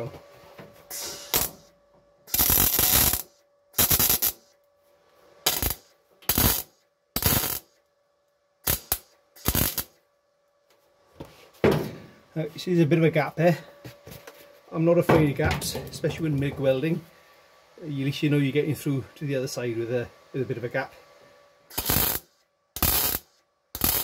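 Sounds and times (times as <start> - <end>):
mig welder bursts: 0.9 - 4.6, 5.4 - 7.8, 8.6 - 10.0, 21.7 - 24.0.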